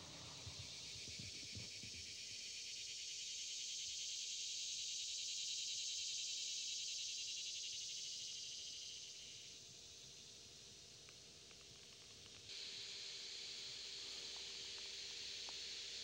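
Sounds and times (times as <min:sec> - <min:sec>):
insects buzzing: 0:00.0 - 0:16.0.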